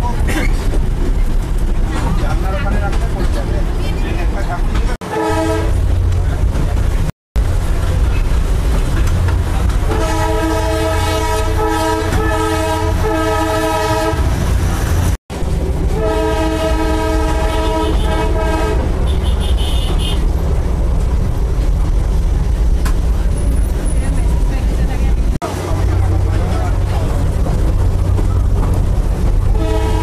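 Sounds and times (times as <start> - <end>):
toy train horn blasts: 5.1 - 5.8, 9.9 - 14.2, 29.5 - 30.0.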